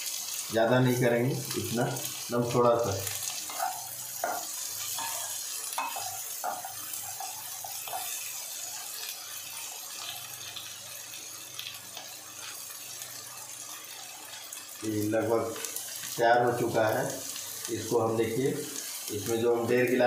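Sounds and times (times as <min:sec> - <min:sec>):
food sizzling in a pan: 0:00.0 - 0:20.0
spatula scraping a pan: 0:03.2 - 0:08.9.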